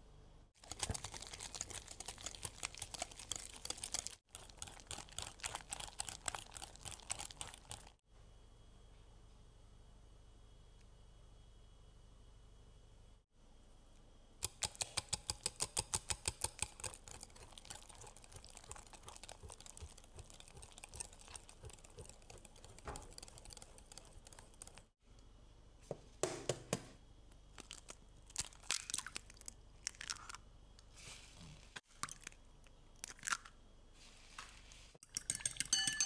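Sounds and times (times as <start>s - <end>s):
utensil clicking against bowl: 14.4s - 24.9s.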